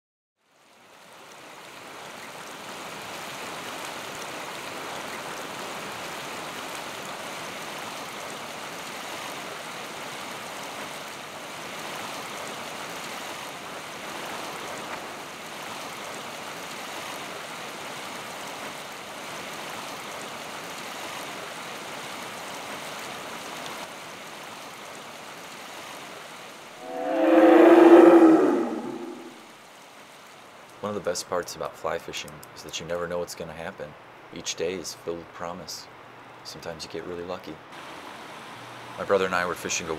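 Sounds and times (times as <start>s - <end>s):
flowing river water: 0.4s - 30.9s.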